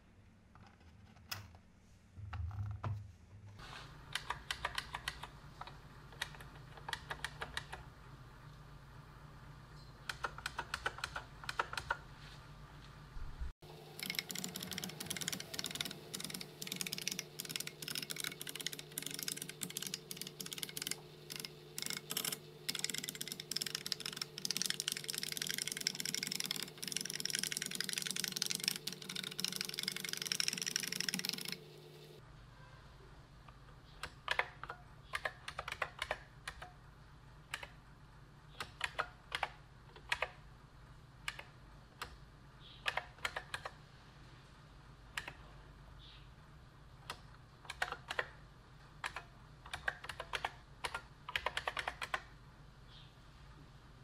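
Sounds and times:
steady hum: 3.3 - 33.9.

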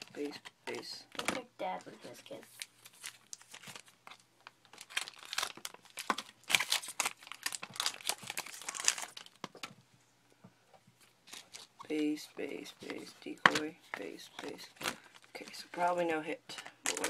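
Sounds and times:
wrapper crinkling and tearing: 2.2 - 9.7, 11.2 - 11.8, 14.4 - 17.0.

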